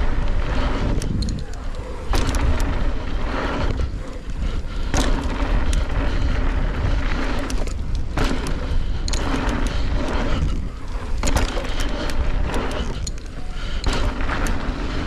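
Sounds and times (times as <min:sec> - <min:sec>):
bike clicks and rattles: 0:00.0 - 0:15.0
tyres rolling on dirt: 0:00.0 - 0:15.0
wind buffeting microphone: 0:00.0 - 0:15.0.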